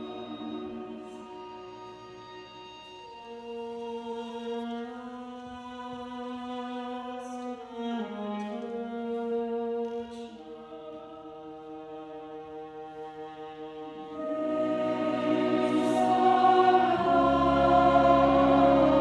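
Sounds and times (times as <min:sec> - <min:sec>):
women's choir singing: 0:00.0 - 0:01.9, 0:10.0 - 0:19.0.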